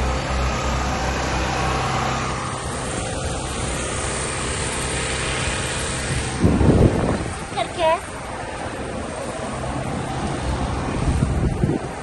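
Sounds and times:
low mechanical rumble: 0.0s - 12.0s
hiss: 2.6s - 6.7s.

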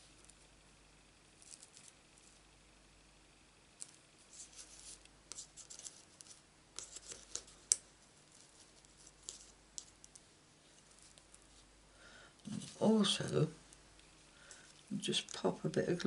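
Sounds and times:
fingertips rubbing on card: 4.3s - 7.6s.

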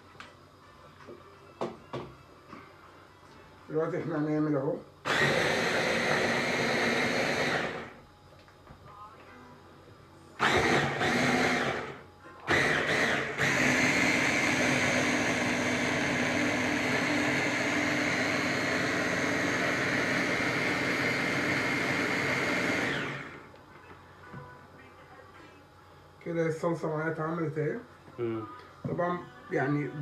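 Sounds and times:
electric hand blender whining: 5.0s - 8.0s, 10.4s - 23.5s.

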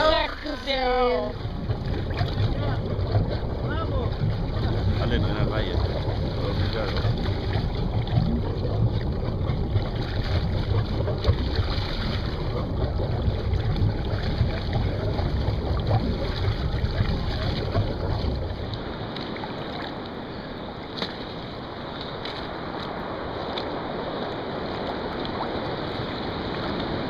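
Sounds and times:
heavy rumble: 0.0s - 19.8s
water rushing past boat: 0.0s - 27.0s
wind buffeting microphone: 0.0s - 27.0s.

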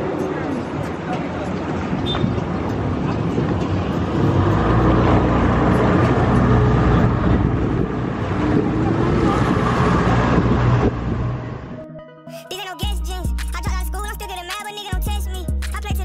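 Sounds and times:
wind buffeting microphone: 0.0s - 11.8s
motorboat engine drone: 2.0s - 11.8s.

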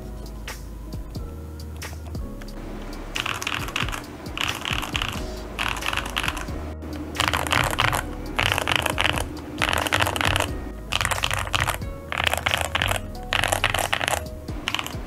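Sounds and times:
background music: 0.0s - 15.0s
mechanical keyboard typing: 3.2s - 6.5s, 7.2s - 15.0s.

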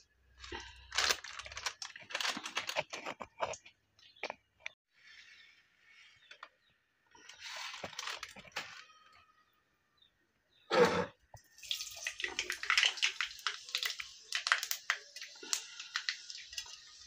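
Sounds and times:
plastic packet crinkling: 0.4s - 3.6s, 7.5s - 8.8s
kitchen items clicking: 0.5s - 4.8s.

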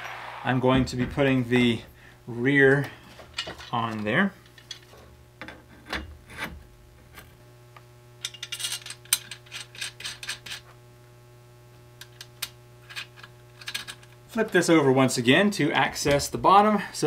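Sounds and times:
low hum: 0.0s - 14.4s
metal parts clicking: 8.2s - 10.6s, 12.1s - 14.2s.

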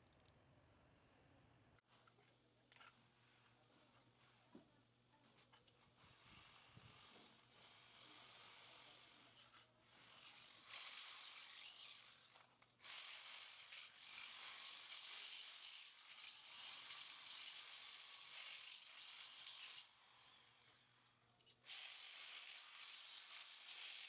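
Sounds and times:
electric drill boring into metal: 21.7s - 24.0s.

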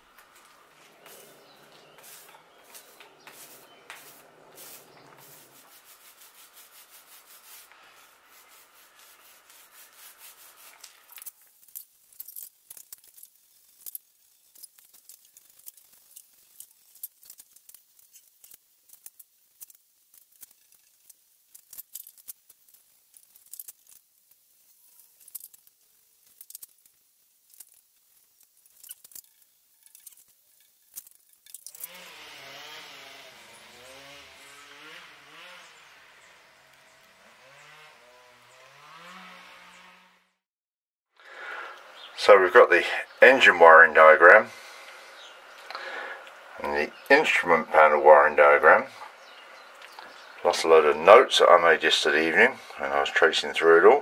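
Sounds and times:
roller rubbing sticky epoxy: 0.0s - 40.0s.

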